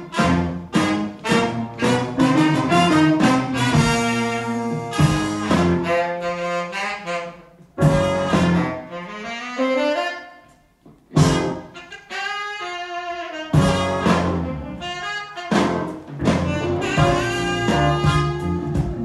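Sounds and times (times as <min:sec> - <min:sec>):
horn section playing blues: 0:00.0 - 0:19.0
saxophone: 0:00.0 - 0:19.0.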